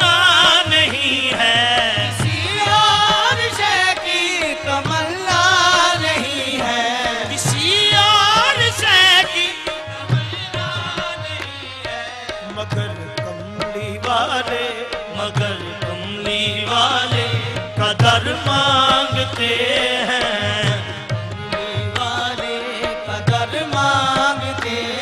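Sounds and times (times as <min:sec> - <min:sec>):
harmonium: 0:00.0 - 0:25.0
men singing: 0:00.0 - 0:25.0
tabla rhythm: 0:00.0 - 0:25.0.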